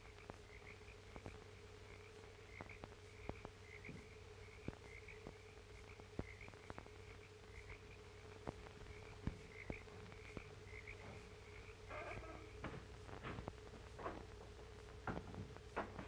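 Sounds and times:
frog chorus chirping: 0.0s - 12.7s
film soundtrack hiss and hum: 0.0s - 16.0s.

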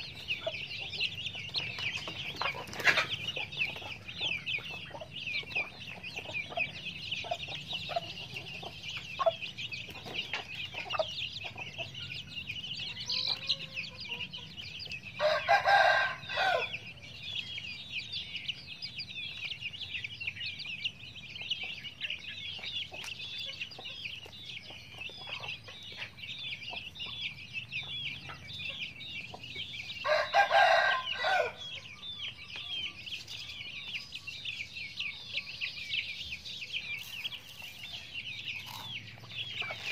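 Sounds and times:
chicks peeping: 0.0s - 39.9s
rooster crowing: 15.2s - 16.8s, 30.0s - 31.7s.

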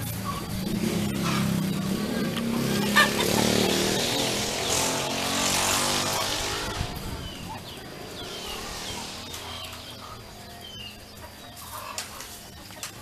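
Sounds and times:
vehicle engine running: 0.0s - 12.8s.

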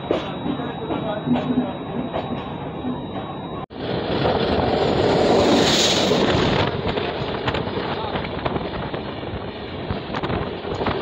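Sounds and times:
passing locomotive rush: 3.7s - 11.0s
wind buffeting microphone: 3.8s - 11.0s.

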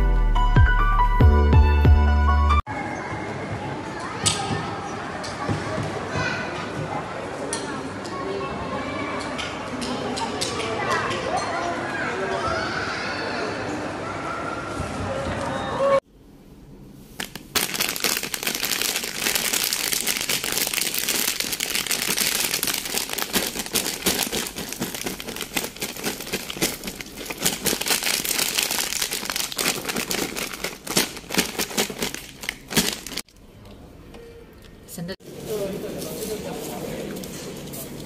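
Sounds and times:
plastic bags crinkling and rustling: 17.1s - 33.4s.

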